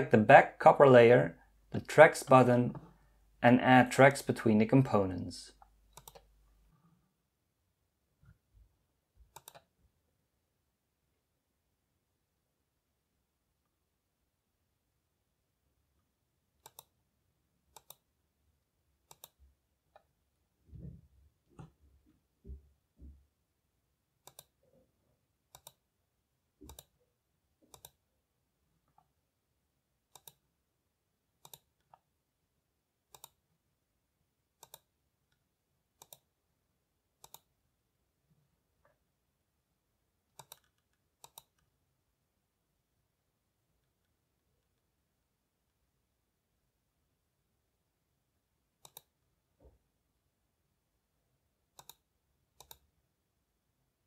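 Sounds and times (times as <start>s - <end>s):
computer mouse clicks: 5.6s - 6.3s, 9.3s - 9.7s, 16.6s - 17.0s, 17.7s - 18.1s, 19.0s - 20.1s, 24.2s - 24.6s, 25.5s - 25.8s, 26.6s - 27.0s, 27.6s - 28.0s, 30.1s - 30.4s, 31.4s - 32.1s, 33.1s - 33.4s, 34.6s - 35.4s, 36.0s - 36.3s, 37.2s - 37.5s, 40.3s - 41.7s, 48.8s - 49.2s, 51.7s - 52.9s.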